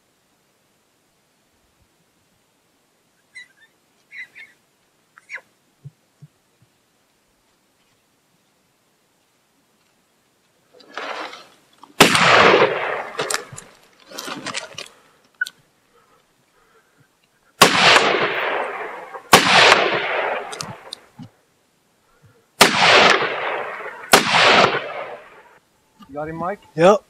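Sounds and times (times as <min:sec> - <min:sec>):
rifle shots echoing: 0:10.9 - 0:11.4, 0:12.0 - 0:13.8, 0:17.6 - 0:21.1, 0:22.6 - 0:25.6
faint gunshot reports: 0:12.0 - 0:13.6, 0:17.6 - 0:20.9, 0:22.6 - 0:25.4.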